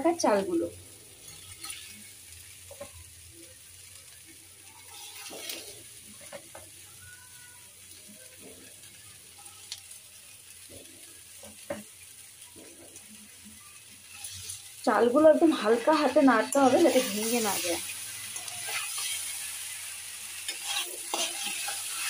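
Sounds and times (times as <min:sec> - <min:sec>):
food sizzling in a pan: 0:00.0 - 0:22.0
spatula scraping a pan: 0:01.2 - 0:03.0, 0:04.9 - 0:06.8, 0:14.0 - 0:22.0.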